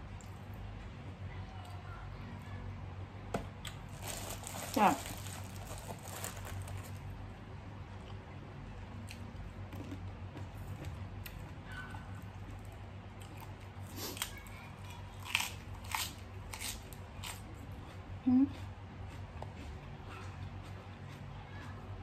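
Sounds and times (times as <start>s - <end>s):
low steady hum: 0.0s - 22.0s
crunchy lettuce bites: 3.6s - 7.1s, 12.5s - 17.5s
chewing and crunching food: 3.6s - 7.2s, 8.9s - 22.0s.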